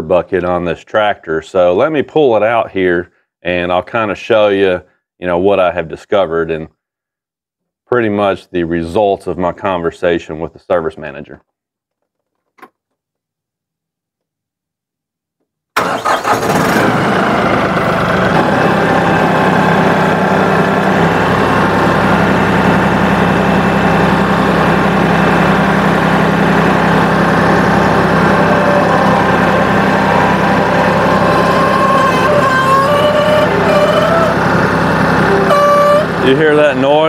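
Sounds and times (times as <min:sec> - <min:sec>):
tractor diesel engine running: 0:15.8 - 0:37.0
wavering whine: 0:17.7 - 0:37.0.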